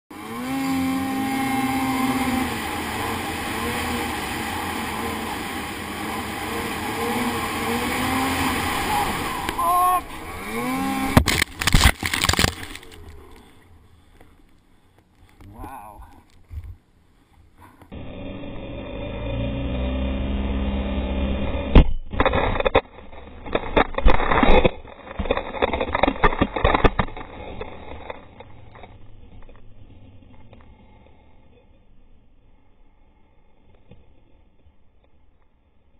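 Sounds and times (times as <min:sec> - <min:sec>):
snowmobile engine running: 0:00.1 - 0:14.2, 0:17.6 - 0:31.7
snowmobile track noise: 0:00.1 - 0:35.9
snow scraping and hissing: 0:00.5 - 0:11.2
snowmobile crashing in snow: 0:00.6 - 0:13.2.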